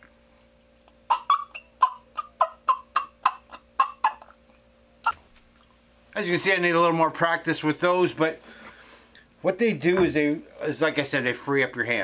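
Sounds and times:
turkey mouth call: 0:01.1 - 0:04.4.

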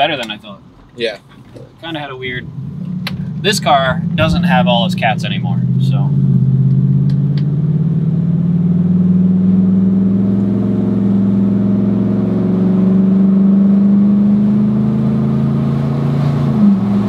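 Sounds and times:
car exhaust drone: 0:00.0 - 0:17.0.

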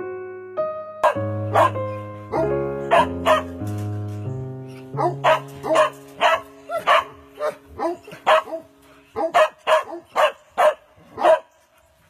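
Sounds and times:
dog barking: 0:01.0 - 0:03.5, 0:05.0 - 0:11.5.

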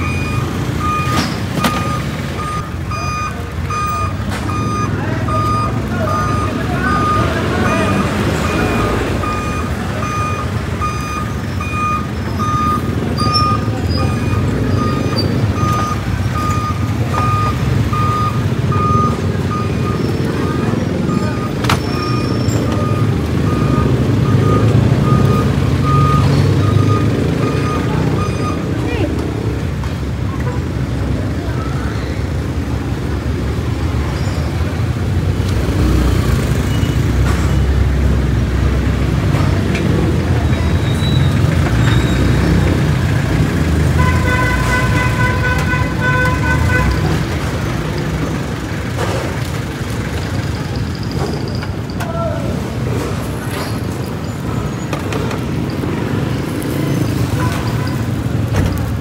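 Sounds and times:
reversing alarm beeping: 0:00.0 - 0:28.7
engine rumble: 0:00.0 - 0:59.0.

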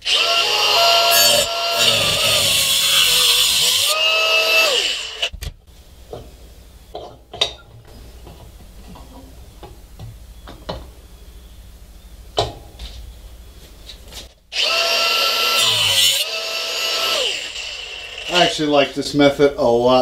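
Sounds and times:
angle grinder cutting metal tubing: 0:00.0 - 0:05.3, 0:14.5 - 0:18.6.

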